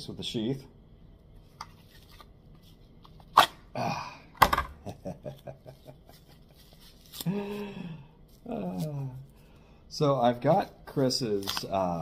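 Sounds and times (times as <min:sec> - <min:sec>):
man chuckling: 0:03.8 - 0:09.0
man humming: 0:08.4 - 0:09.2.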